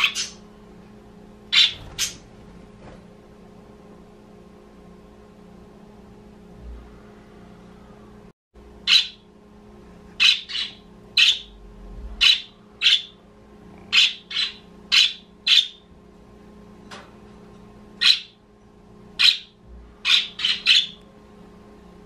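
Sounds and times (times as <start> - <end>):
budgerigar chirping: 0.0 - 0.4, 1.5 - 2.2, 8.9 - 9.2, 10.2 - 11.5, 12.2 - 13.2, 13.9 - 15.8, 18.0 - 18.4, 19.2 - 21.0.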